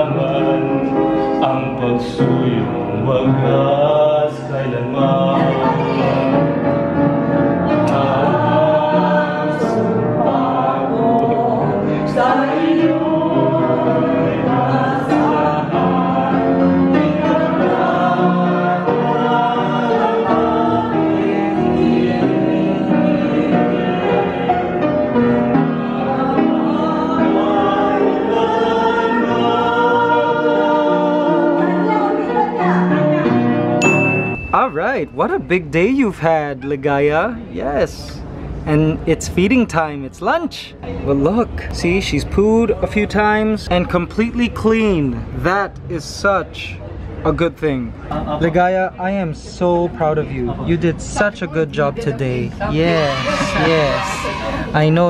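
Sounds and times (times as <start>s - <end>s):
piano accompaniment: 0.0s - 37.5s
women singing in unison: 5.0s - 6.5s, 7.7s - 24.6s, 25.6s - 33.6s.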